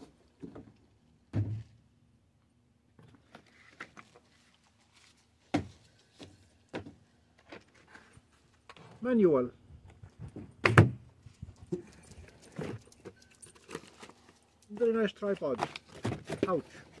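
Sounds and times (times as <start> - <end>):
cardboard knocks and thumps: 5.5 - 5.8.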